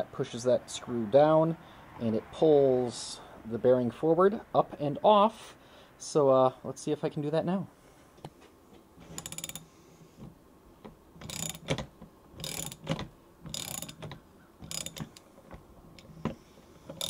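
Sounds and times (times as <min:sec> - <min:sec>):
ratchet wrench clicking: 0:09.0 - 0:09.7, 0:11.2 - 0:15.3.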